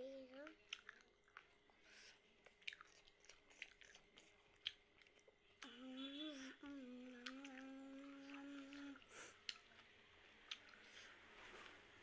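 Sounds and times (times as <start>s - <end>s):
chewing noodles: 0.4s - 5.7s
person humming: 5.6s - 9.1s.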